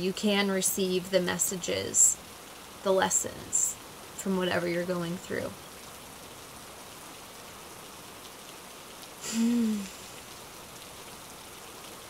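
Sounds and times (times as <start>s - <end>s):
steady hiss: 5.7s - 11.5s
woman humming: 9.2s - 10.2s.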